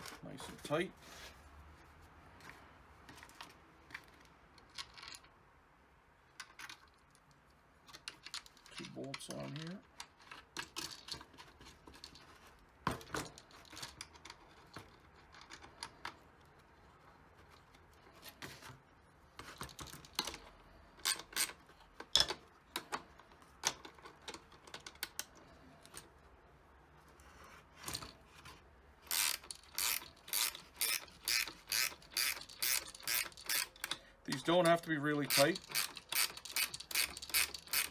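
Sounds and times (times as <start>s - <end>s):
parts being handled: 0.0s - 37.9s
ratchet wrench clicking: 29.1s - 37.9s.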